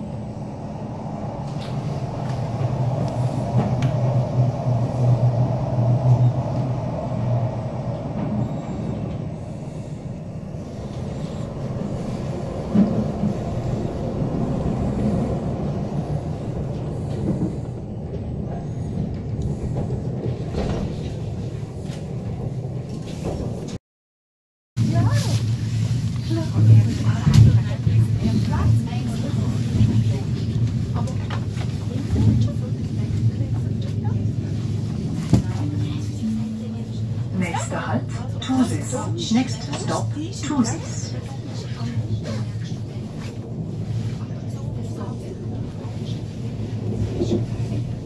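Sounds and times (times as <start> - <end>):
train rumble inside carriage: 0.0 - 23.8, 24.8 - 48.0.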